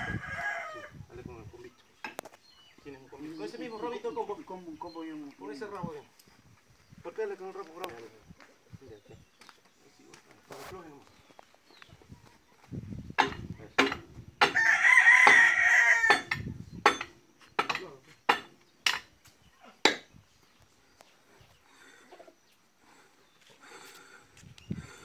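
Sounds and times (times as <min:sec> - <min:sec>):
rooster crowing: 0:00.0 - 0:01.0, 0:14.5 - 0:16.4.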